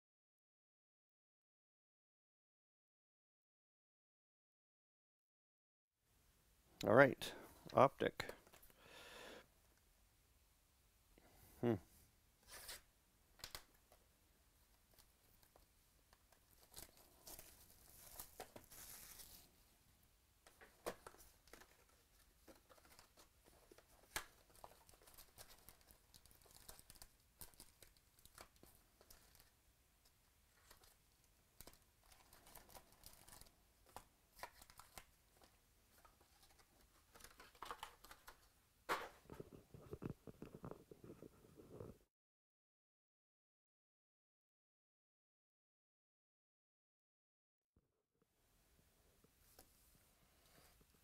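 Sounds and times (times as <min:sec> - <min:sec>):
plastic wrap crinkling: 0:16.5 - 0:19.5, 0:22.6 - 0:29.5, 0:31.6 - 0:33.6.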